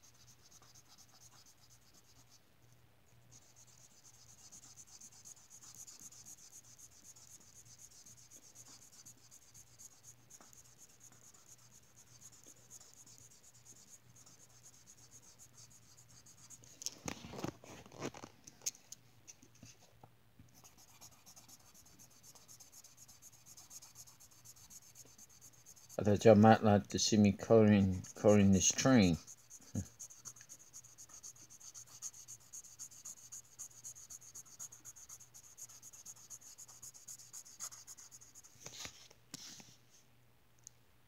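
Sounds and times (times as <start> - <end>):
marker scratching on paper: 0.0 - 2.4, 3.3 - 16.7, 20.5 - 26.2, 27.7 - 39.6.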